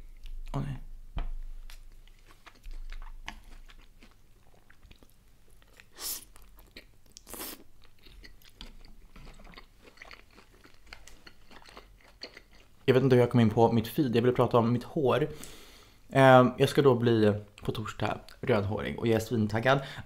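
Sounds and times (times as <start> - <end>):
person chewing: 1.4 - 12.8.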